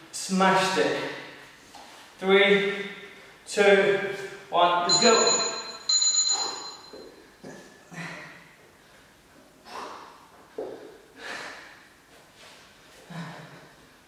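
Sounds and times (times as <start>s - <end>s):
man breathing hard: 11.1s - 12.0s.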